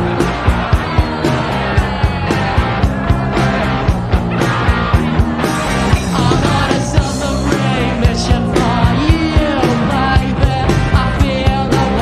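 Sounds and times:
fast drum beat: 0.0 - 12.0
punk rock band playing: 0.0 - 12.0
man singing: 6.0 - 12.0.

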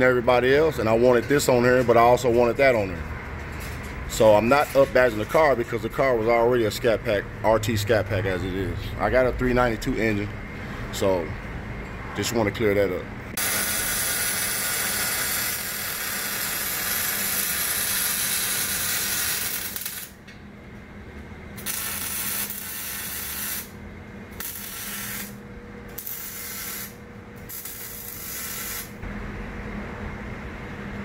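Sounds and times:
power tool hissing: 13.4 - 20.1, 24.4 - 25.4, 26.0 - 29.0.

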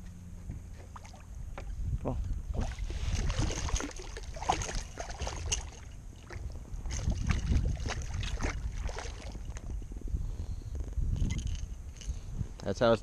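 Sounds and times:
low wind rumble on microphone: 0.0 - 13.0
fish splashing at water surface: 2.6 - 9.6.

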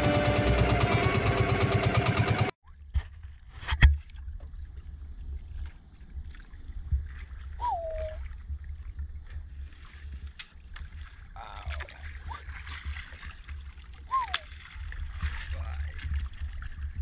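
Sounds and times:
water lapping against boat: 4.0 - 17.0.

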